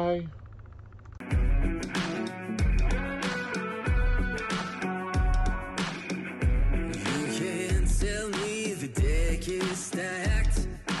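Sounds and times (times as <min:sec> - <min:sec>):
deep bass beat: 0:01.3 - 0:03.2, 0:05.2 - 0:05.7, 0:06.4 - 0:11.0.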